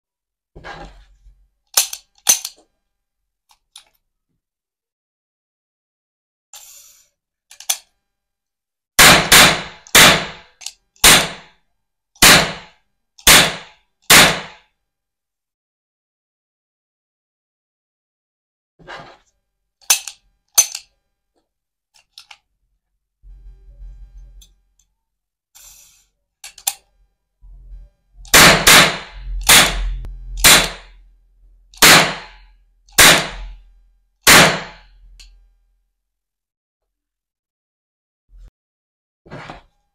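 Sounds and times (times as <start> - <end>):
toy cap gun bangs: 9.0 - 11.5, 12.2 - 14.6, 28.3 - 30.9, 31.8 - 33.6, 34.3 - 34.9.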